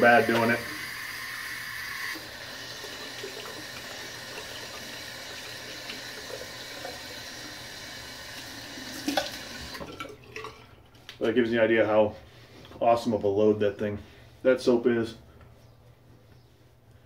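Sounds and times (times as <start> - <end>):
tap water running into sink: 0.0 - 10.6.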